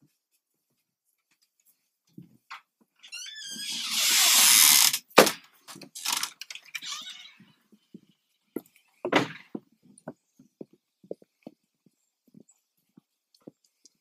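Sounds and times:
screen door banging shut: 3.4 - 5.4
footsteps on wooden deck: 5.6 - 14.0.

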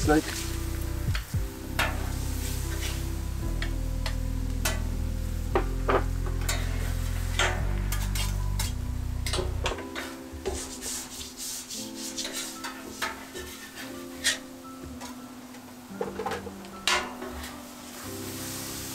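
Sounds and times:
background music with bass: 0.0 - 11.3
light sizzling: 0.0 - 18.9
metal spatula scraping griddle: 1.8 - 4.9, 6.3 - 15.2, 15.9 - 18.2.

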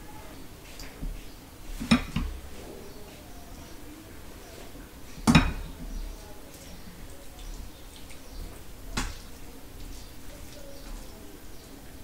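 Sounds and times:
dish handling noise: 1.7 - 2.5, 5.2 - 5.7
dishes clinking: 1.8 - 2.4, 5.2 - 5.8
glass bowl knocking: 5.3 - 5.7.

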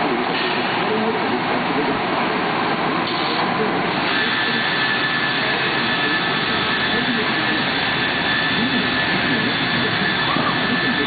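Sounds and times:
steady high whine: 0.0 - 11.0
machine running: 2.6 - 11.0.

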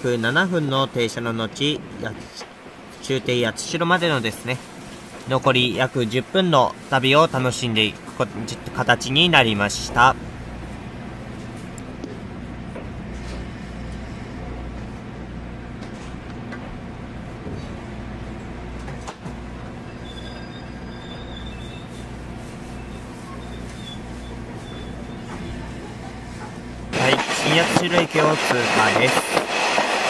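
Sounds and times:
faint thin squeal: 19.8 - 22.1.

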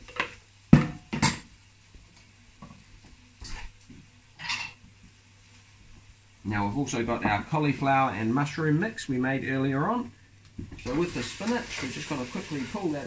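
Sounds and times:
utensils and dishes clattering: 4.4 - 4.8.

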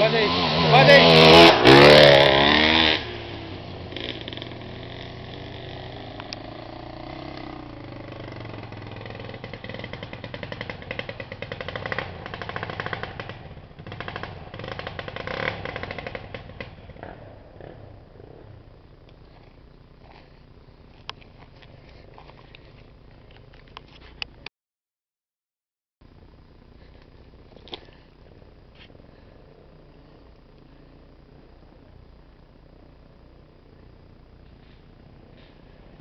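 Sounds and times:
motorcycle engine revving: 0.0 - 22.9, 32.9 - 36.0.

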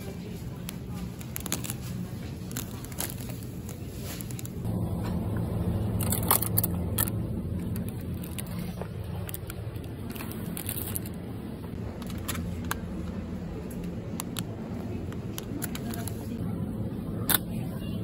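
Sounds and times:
plastic packaging crinkling: 0.2 - 4.7, 5.9 - 11.3
low rumble: 1.4 - 18.0.

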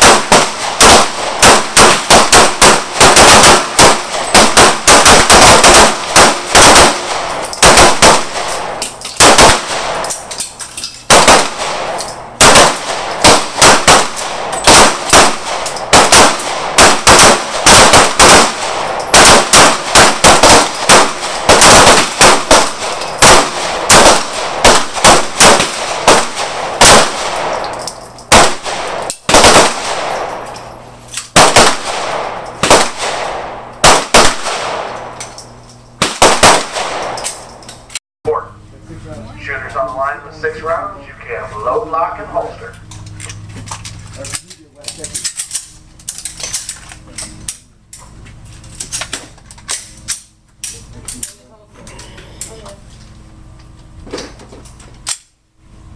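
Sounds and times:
pistol shots with echo: 0.0 - 10.3, 11.1 - 30.5, 31.3 - 35.2, 36.0 - 37.4.

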